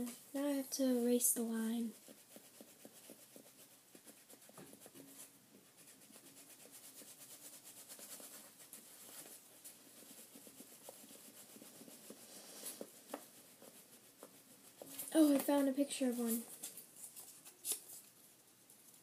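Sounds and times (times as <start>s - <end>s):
pencil scratching on paper: 1.8s - 15.0s.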